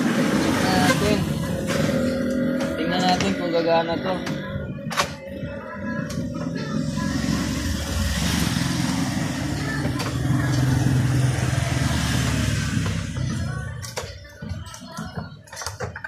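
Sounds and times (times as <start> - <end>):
motorcycle engine passing by: 6.9 - 13.6.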